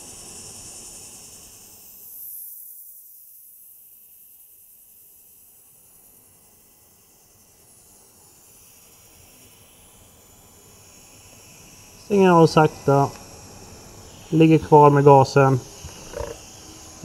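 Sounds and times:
welding arc hissing: 5.8 - 17.0.

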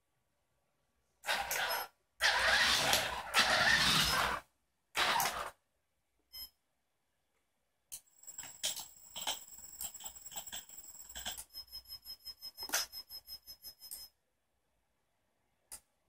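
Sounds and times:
short beep: 6.3 - 6.6.

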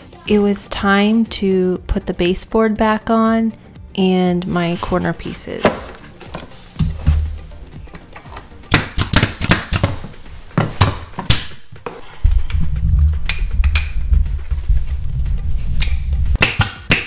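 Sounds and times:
pneumatic nailer firing: 8.7 - 9.9.

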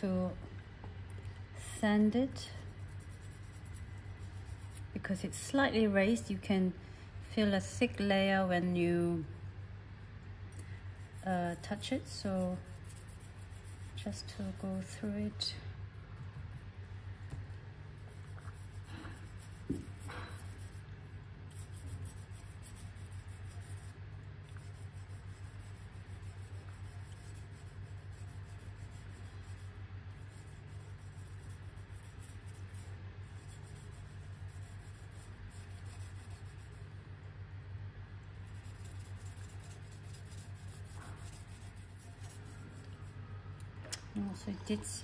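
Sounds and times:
steady low hum: 0.0 - 45.0
sandpaper scratching: 2.7 - 4.9, 11.2 - 15.0, 18.1 - 20.8, 21.5 - 36.8, 38.4 - 43.0.

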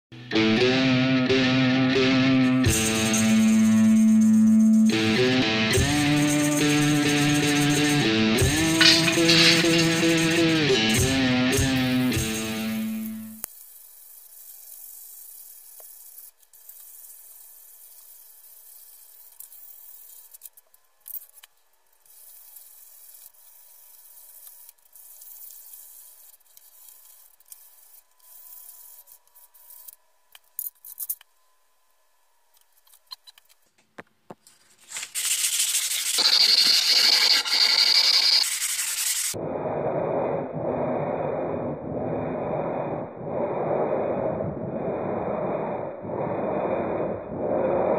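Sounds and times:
sandpaper sanding wood: 34.8 - 39.3
steady rushing noise: 39.3 - 47.9.

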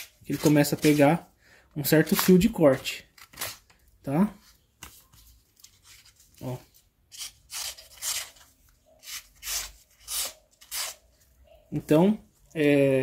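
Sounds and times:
file scraping knife blade: 7.2 - 8.4, 9.0 - 11.0.

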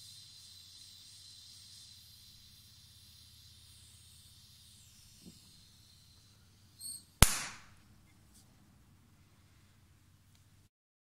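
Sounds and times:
torch flame hissing: 0.0 - 8.1
high squeak: 6.1 - 7.2
loud sharp knock: 7.2 - 7.7.

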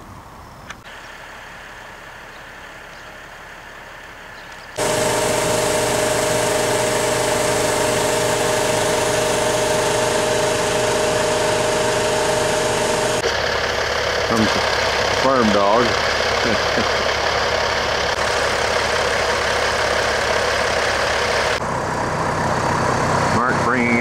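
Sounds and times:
faint outdoor ambience: 0.0 - 4.8
diesel truck engine running: 3.3 - 24.0.

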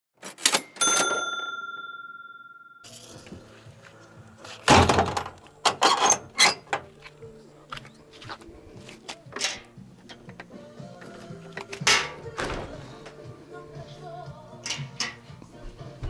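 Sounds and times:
knocks thuds and clatters: 4.7 - 5.4.

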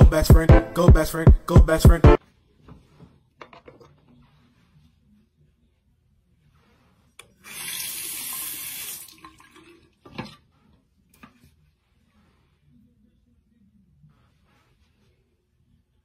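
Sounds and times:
sink tap running: 7.5 - 9.2.

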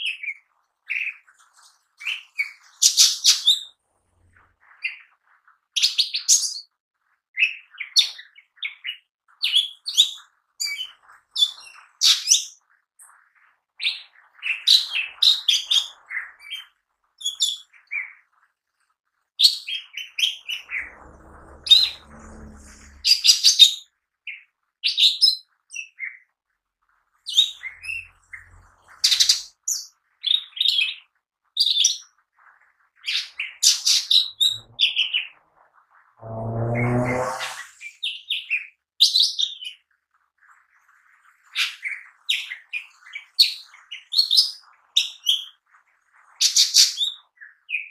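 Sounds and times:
bird singing chirps and trills: 27.3 - 31.0.

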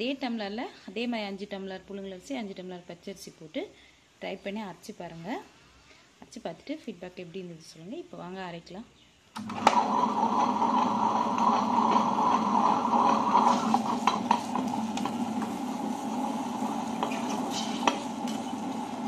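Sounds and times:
wet grinder running: 9.4 - 19.0.

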